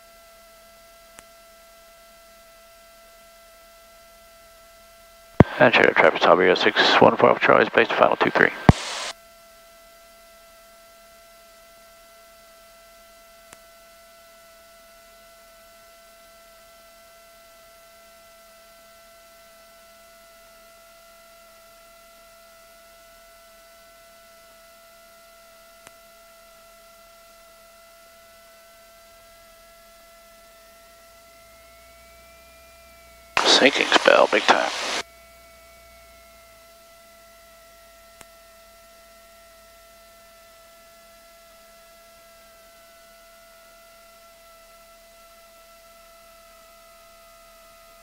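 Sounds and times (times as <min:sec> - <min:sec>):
constant hiss: 0:05.4 - 0:09.1, 0:33.4 - 0:35.0
electrical hum and whine: 0:05.4 - 0:09.1, 0:33.4 - 0:35.0.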